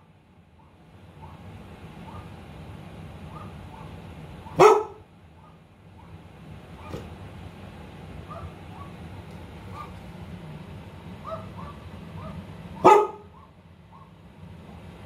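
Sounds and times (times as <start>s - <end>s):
dog barking through laptop speaker: 0.6s - 2.4s, 3.3s - 7.1s, 8.2s - 9.0s, 9.7s - 10.0s, 11.2s - 14.2s
loud full dog bark: 0.6s - 2.4s, 3.3s - 6.2s, 8.3s - 9.0s, 9.7s - 10.0s, 11.2s - 14.2s.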